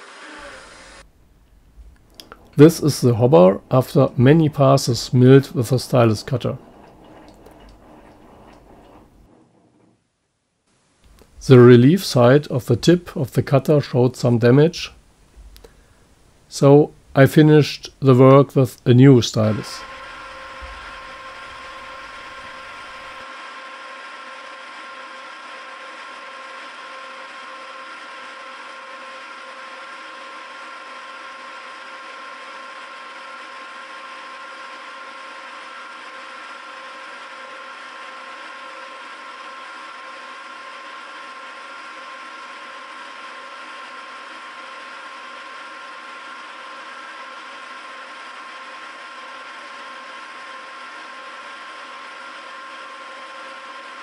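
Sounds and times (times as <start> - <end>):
milling machine whirring: 0.0 - 1.1, 2.2 - 9.8, 19.4 - 23.2, 24.1 - 54.0.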